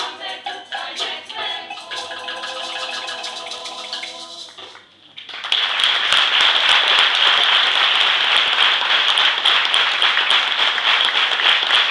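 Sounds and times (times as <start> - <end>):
audience applauding: 5.2 - 11.9.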